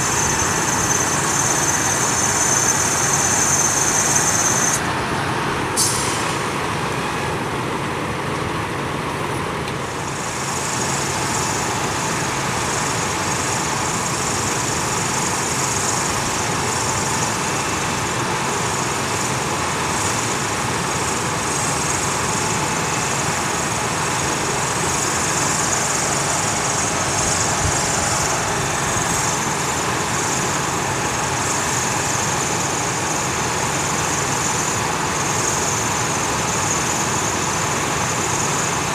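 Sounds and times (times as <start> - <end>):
high-pitched buzz: 0.0 - 4.8
engine running: 0.0 - 38.9.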